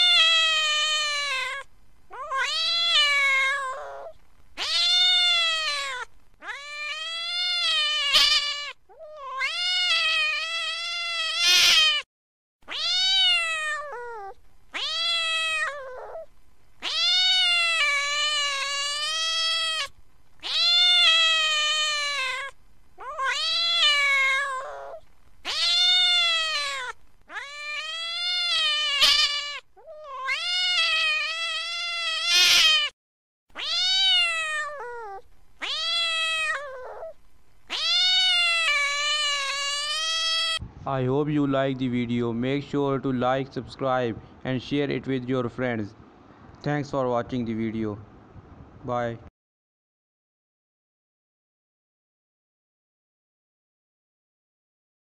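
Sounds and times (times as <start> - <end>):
cat meowing angrily: 0.0 - 40.6.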